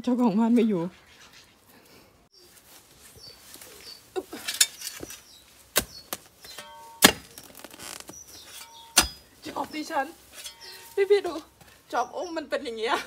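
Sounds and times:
small birds chirping: 0:00.2 - 0:13.0
spade chopping into soil: 0:04.4 - 0:07.4, 0:08.4 - 0:09.2.

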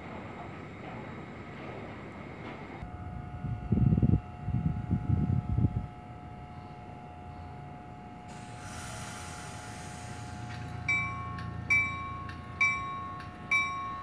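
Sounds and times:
train electrical hum: 0:00.0 - 0:14.0
train bell ringing: 0:06.3 - 0:14.0
air hiss: 0:08.3 - 0:11.7.

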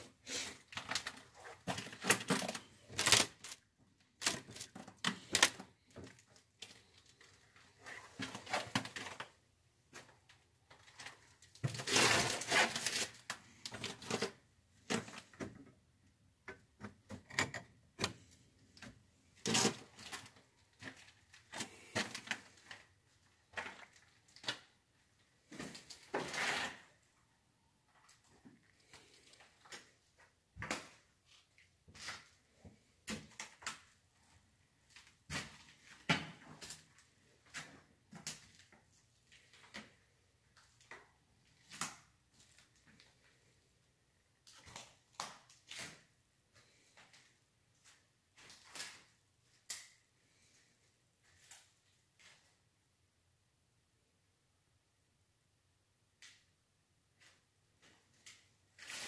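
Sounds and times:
crunches and scrapes: 0:10.7 - 0:15.4, 0:17.2 - 0:22.9, 0:25.5 - 0:26.9.

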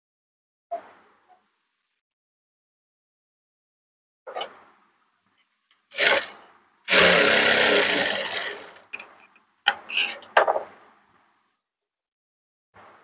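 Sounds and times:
sewing machine running: 0:05.9 - 0:08.9.

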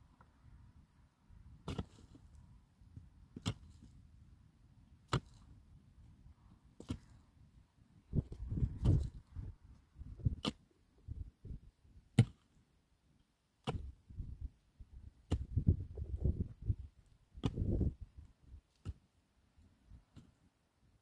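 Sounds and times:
pick striking stony earth: 0:01.6 - 0:02.4, 0:03.3 - 0:04.0, 0:05.0 - 0:05.6, 0:06.8 - 0:07.2, 0:08.1 - 0:10.7, 0:11.4 - 0:12.6, 0:13.6 - 0:14.4, 0:15.1 - 0:19.1, 0:20.1 - 0:20.4
dirt clods tumbling down: 0:08.1 - 0:10.6, 0:15.2 - 0:19.0.

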